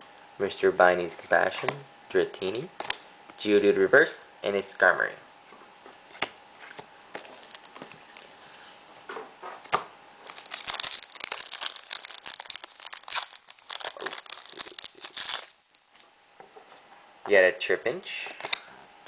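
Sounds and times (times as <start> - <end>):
foil wrapper crinkling and tearing: 7.4 - 7.8, 10.2 - 15.6.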